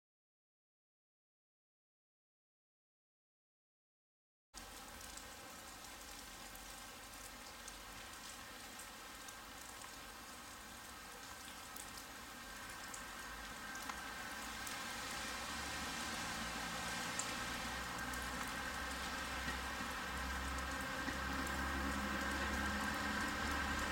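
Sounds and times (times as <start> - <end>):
faint steady hiss: 4.6 - 22.5.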